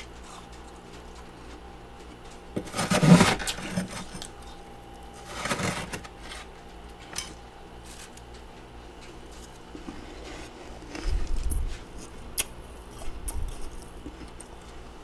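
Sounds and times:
spoon scraping frost: 2.5s - 6.5s.

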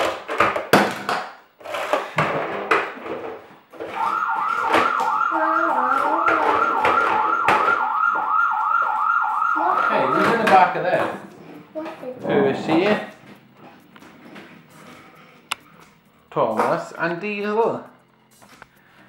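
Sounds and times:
toy siren warbling: 3.8s - 10.8s.

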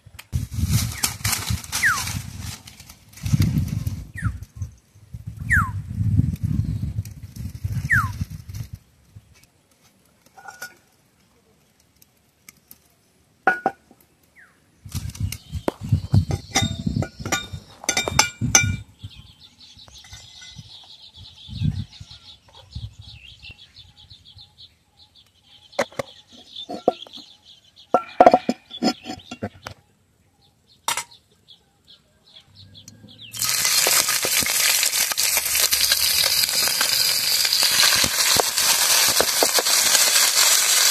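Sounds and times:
wok and bottle knocking and clinking: 13.5s - 13.9s, 16.2s - 18.8s, 28.0s - 29.6s, 30.9s - 31.1s
prawns sizzling in hot oil: 33.3s - 40.9s.

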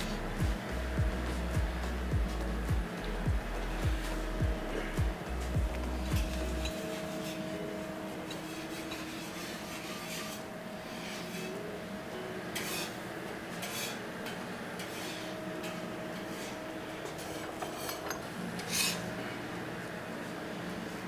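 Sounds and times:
metal spatula scraping griddle: 0.0s - 0.4s, 5.9s - 19.4s.

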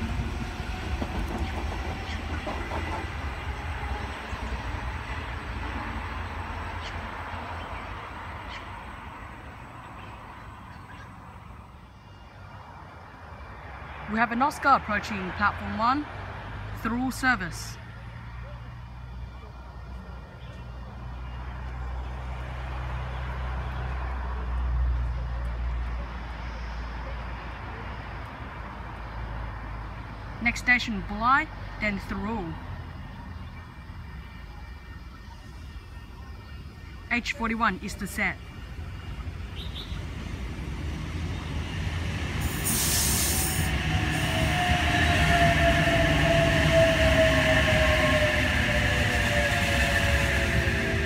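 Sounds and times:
electric train hum and rumble: 0.0s - 51.0s
train whine falling in pitch: 39.2s - 51.0s
short burst of hiss: 42.4s - 43.7s.

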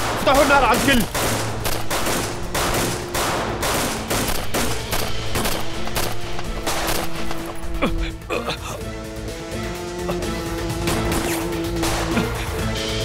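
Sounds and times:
automatic gunfire: 0.0s - 7.6s
dramatic background music: 0.0s - 13.0s.

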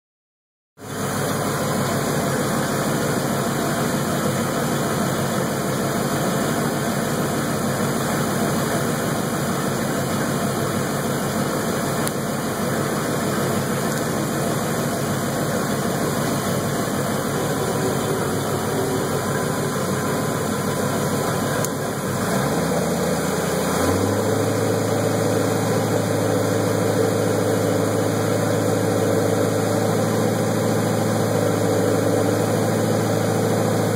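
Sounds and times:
boat engine running: 0.8s - 33.9s.

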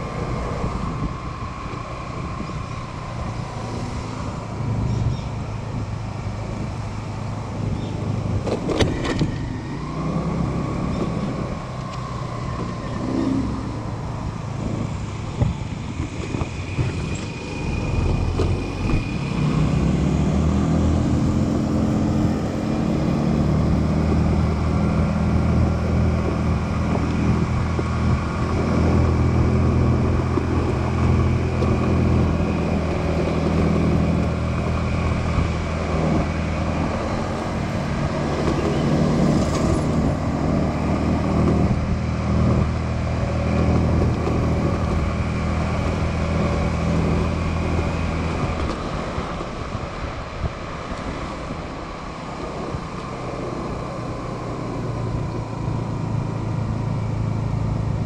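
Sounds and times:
wind and road noise: 0.0s - 58.0s
motorbike engine running: 24.3s - 49.5s.

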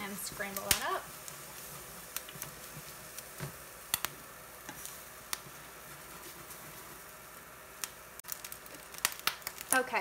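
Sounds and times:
faint sizzle: 0.0s - 10.0s
spatula scraping and tapping a pan: 0.2s - 7.0s.

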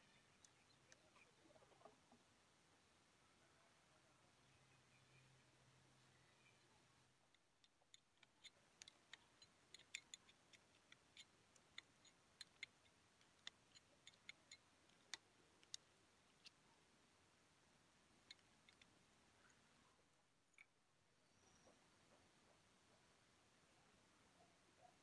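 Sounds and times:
faint sharp clicks: 7.3s - 16.6s, 18.2s - 19.6s.

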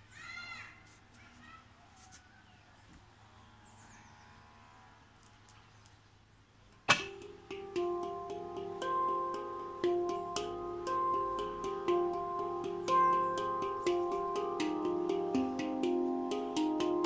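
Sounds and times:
handpan ringing notes: 6.9s - 17.0s.

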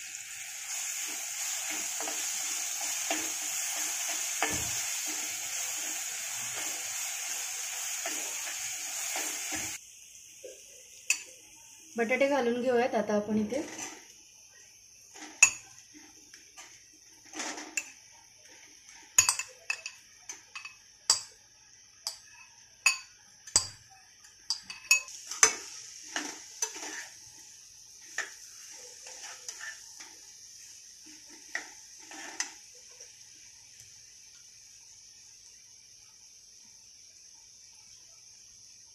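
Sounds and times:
faint steady hiss: 0.0s - 38.9s
spatula knocking and scraping a pan: 1.0s - 9.8s, 24.5s - 27.2s, 28.0s - 30.2s, 31.0s - 32.6s.

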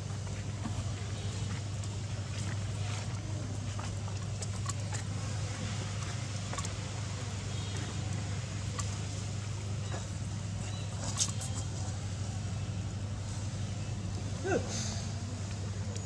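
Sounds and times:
outdoor background noise: 0.0s - 16.0s
steady low hum: 0.0s - 16.0s.

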